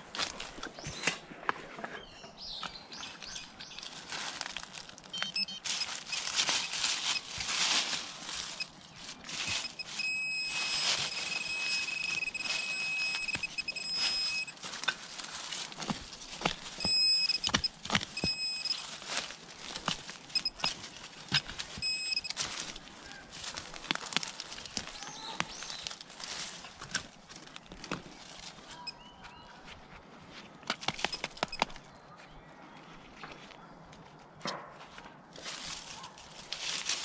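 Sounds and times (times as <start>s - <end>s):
knife scraping through soil and leaves: 3.2s - 28.7s
metal detector beeping: 5.1s - 15.1s, 15.7s - 23.9s, 28.6s - 29.3s, 30.9s - 31.8s.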